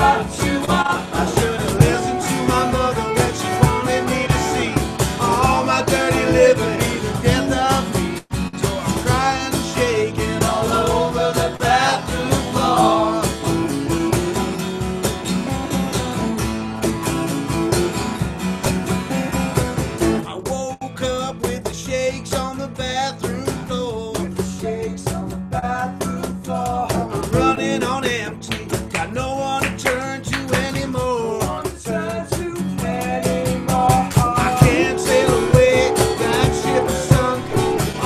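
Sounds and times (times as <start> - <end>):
men singing: 0.0 - 14.4, 24.6 - 38.0
acoustic guitar strumming: 0.0 - 20.3, 27.0 - 31.2, 32.9 - 38.0.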